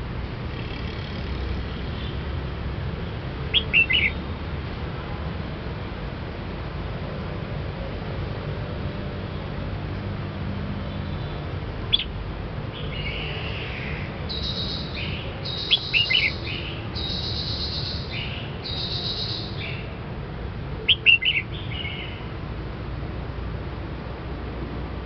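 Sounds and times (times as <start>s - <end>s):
bird singing warbling phrases: 3.5s - 4.2s, 11.9s - 19.9s, 20.8s - 22.3s
sharp loud bird notes: 3.5s - 4.2s, 12.9s - 19.9s, 20.9s - 22.2s.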